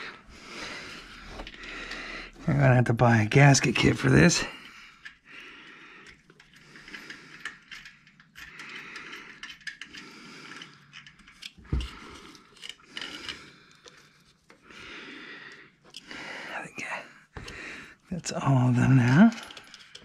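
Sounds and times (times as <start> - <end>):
metal tools clinking: 17.4 - 20.0.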